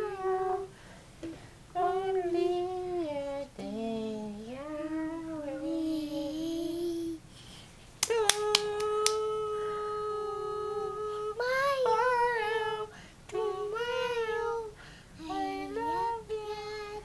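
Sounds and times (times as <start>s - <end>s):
child singing: 0.0s - 0.7s, 1.8s - 7.2s, 8.1s - 17.0s
child clapping hands: 8.0s - 9.2s.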